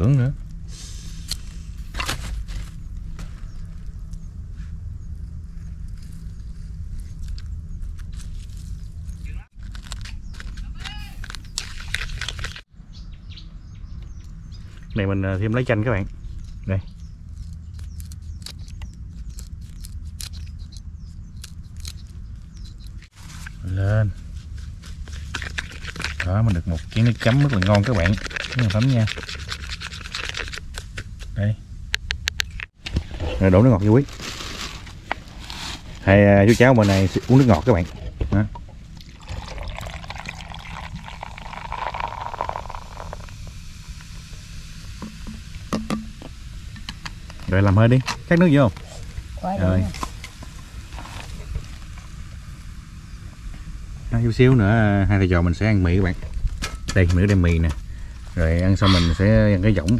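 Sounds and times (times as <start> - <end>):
low rumble: 0.0 - 10.3
lime squeezed with crackles: 9.6 - 12.6, 24.2 - 31.3, 38.9 - 44.1
soft drink pouring into cup of ice: 39.0 - 43.4
drink fizzing and foaming: 39.0 - 44.3.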